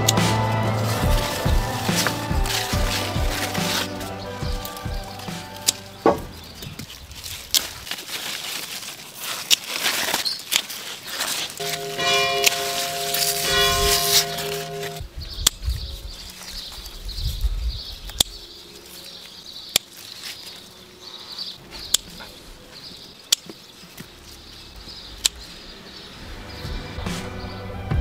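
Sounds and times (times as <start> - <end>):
garden scissors snipping stems: 0.0 - 15.6, 19.7 - 20.6
pulsing high chirping: 11.6 - 15.2.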